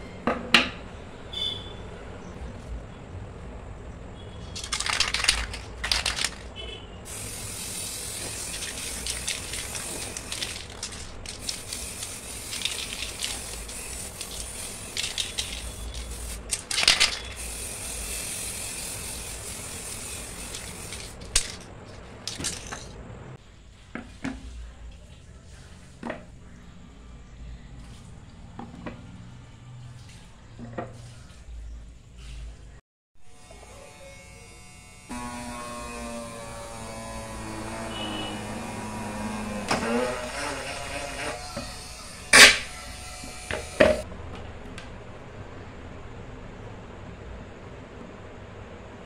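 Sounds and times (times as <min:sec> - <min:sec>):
spray paint can hissing: 0:04.6 - 0:06.5, 0:07.1 - 0:21.7.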